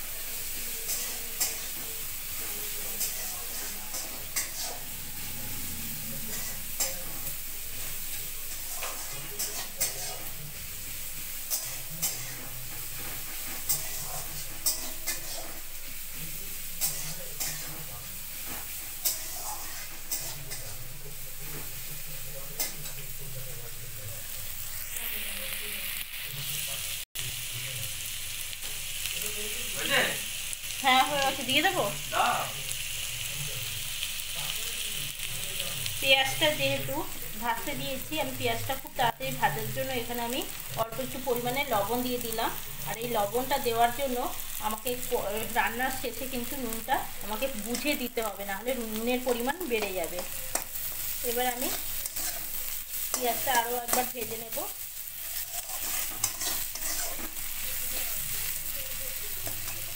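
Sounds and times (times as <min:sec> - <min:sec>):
onions sizzling in oil: 0:00.0 - 0:59.9
spatula scraping squeakily: 0:55.2 - 0:57.3.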